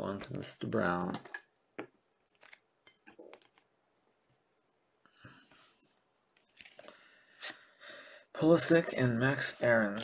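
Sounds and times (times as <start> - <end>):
trading cards rustling and clicking: 2.2 - 3.7, 6.3 - 7.0.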